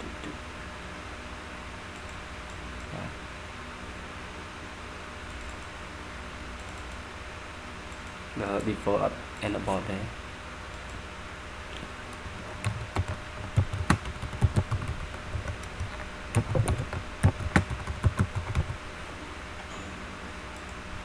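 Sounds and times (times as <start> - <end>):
keyboard typing: 12.6 - 18.8.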